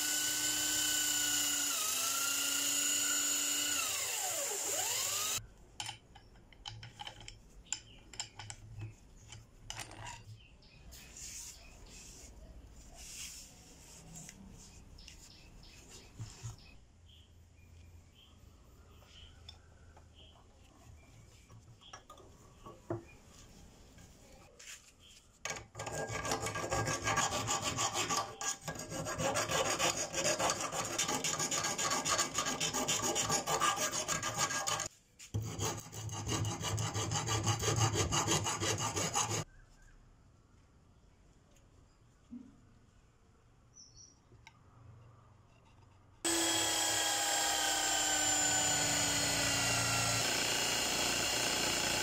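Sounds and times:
file rasping in metal ring: 25.8 - 39.5.

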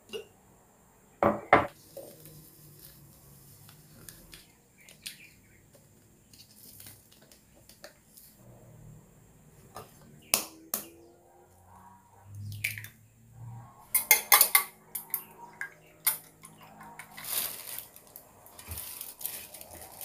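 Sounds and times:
spoon clinking in metal bowl: 13.9 - 17.2.

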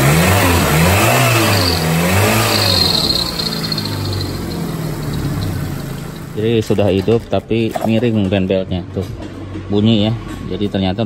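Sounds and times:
car engine revving: 0.0 - 6.4
engine belt squealing: 0.0 - 7.0.

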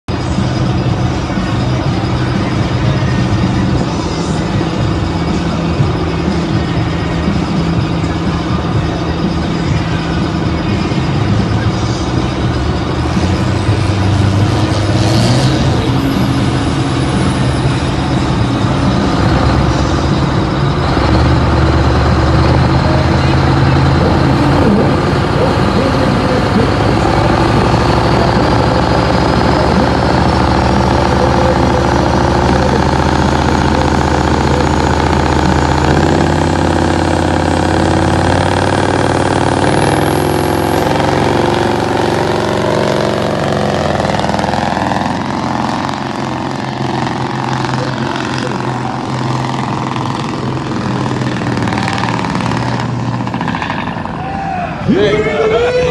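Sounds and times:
diesel engine running loudly: 0.0 - 55.9.

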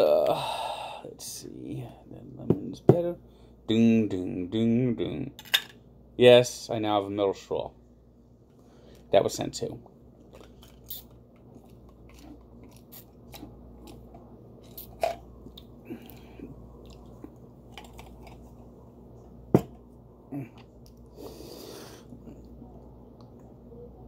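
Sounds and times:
breathy hiss: 20.4 - 22.2.

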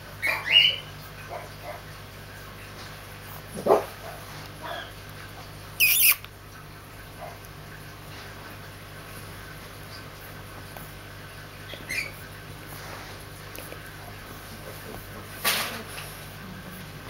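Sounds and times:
puppy yelping: 0.2 - 1.8, 5.8 - 6.3.

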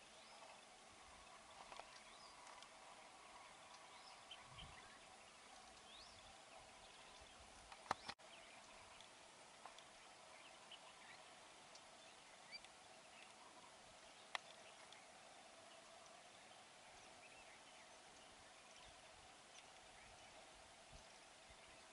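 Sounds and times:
steady low hiss: 0.0 - 21.9
bird chirps: 9.8 - 21.9.

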